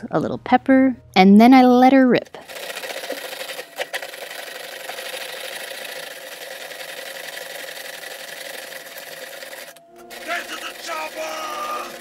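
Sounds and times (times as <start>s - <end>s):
manual food chopper whirring: 2.4s - 12.0s.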